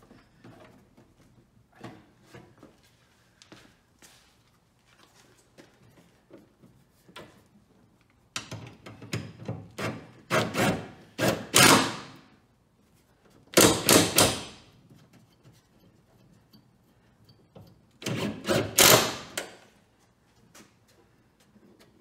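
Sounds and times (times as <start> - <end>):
impact driver hammering: 9.8 - 12.2, 13.6 - 14.7, 18.0 - 19.6.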